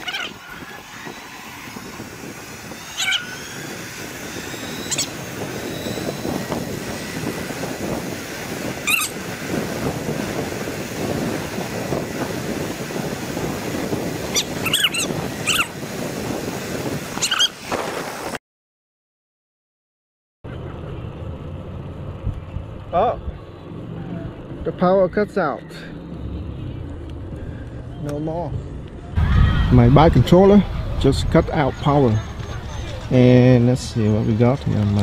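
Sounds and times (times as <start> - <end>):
wind rushing over microphone: 0.0 - 18.4, 26.5 - 35.0.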